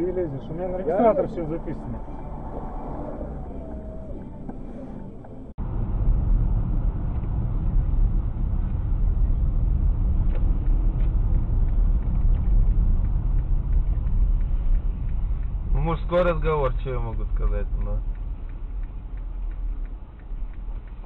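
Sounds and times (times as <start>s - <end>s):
car road and engine rumble: 0.0s - 21.0s.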